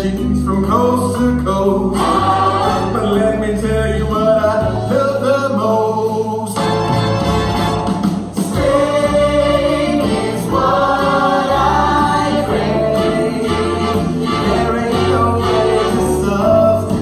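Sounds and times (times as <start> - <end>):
person singing over backing track: 8.4 - 17.0.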